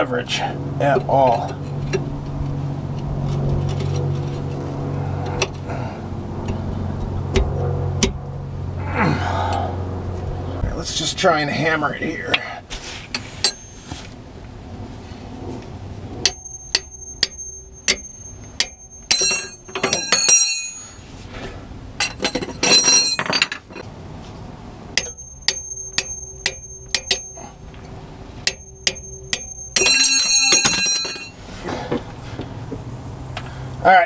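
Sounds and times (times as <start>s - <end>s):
hammer striking a wrench: 7.3s - 8.2s, 13.4s - 13.8s, 16.2s - 21.0s, 25.0s - 27.8s, 28.4s - 31.4s
metal clattering: 16.2s - 21.1s, 22.0s - 23.9s, 25.0s - 32.0s.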